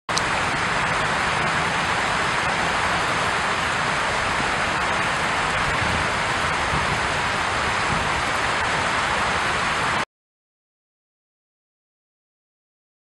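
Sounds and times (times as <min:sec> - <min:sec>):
water rushing: 0:00.1 - 0:10.1.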